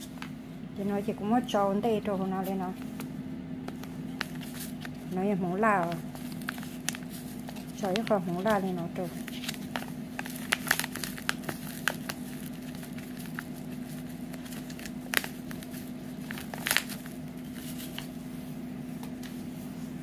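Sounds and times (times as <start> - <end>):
steady low hum: 0.0 - 20.0
plastic packet crinkling: 3.7 - 18.1.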